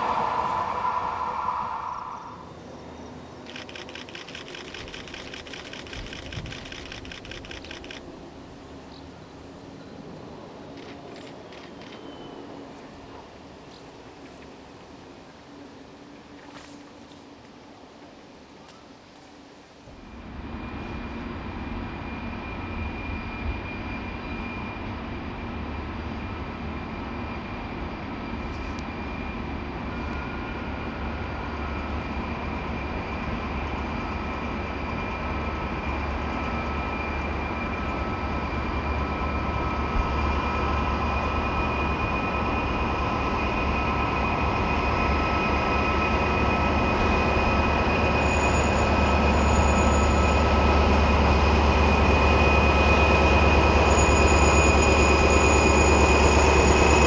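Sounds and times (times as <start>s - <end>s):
high-pitched whine: 0.0s - 8.0s, 20.0s - 57.0s
diesel locomotive engine rumble: 0.0s - 57.0s.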